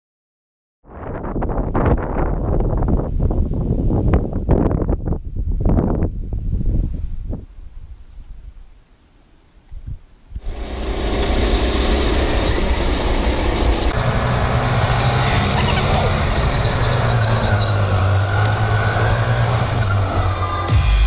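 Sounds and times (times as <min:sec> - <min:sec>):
tyre and wind noise: 0:00.9 - 0:10.6, 0:13.6 - 0:20.8
go-kart motor drone: 0:10.4 - 0:21.0.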